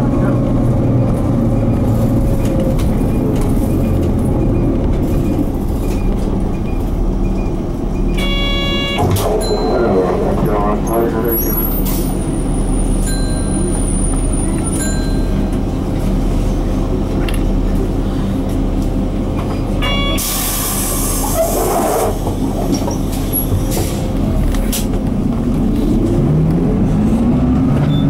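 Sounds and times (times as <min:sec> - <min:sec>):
bus diesel engine running: 0:00.0 - 0:28.0.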